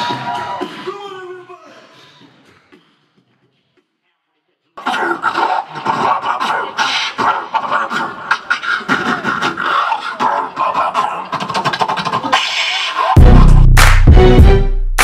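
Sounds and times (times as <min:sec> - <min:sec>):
beatboxing into a microphone: 0:04.8 - 0:13.9
deep bass hit: 0:13.2 - 0:15.0
music track: 0:13.2 - 0:15.0.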